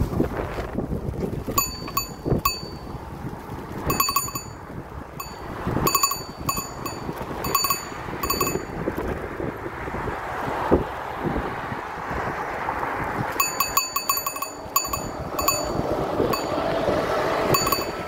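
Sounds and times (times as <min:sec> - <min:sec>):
wind rumble on microphone: 0:00.0 - 0:18.0
bicycle bell dings: 0:01.5 - 0:03.0, 0:03.8 - 0:08.9, 0:13.3 - 0:16.7, 0:17.5 - 0:18.0.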